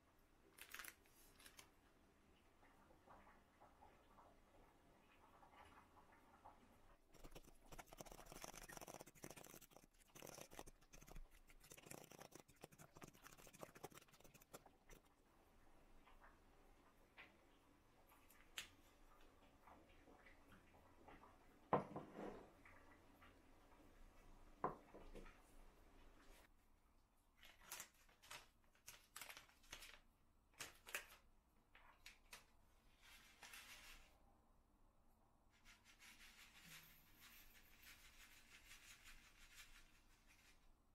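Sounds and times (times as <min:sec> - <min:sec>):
paper packet rustling: 0:00.6 - 0:01.7, 0:27.4 - 0:31.2
spoon scraping glass bowl: 0:07.2 - 0:15.1.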